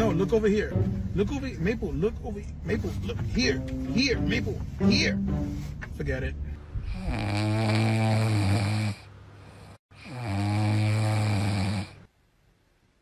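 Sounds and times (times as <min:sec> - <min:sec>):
dog snoring: 0:06.8 - 0:12.1.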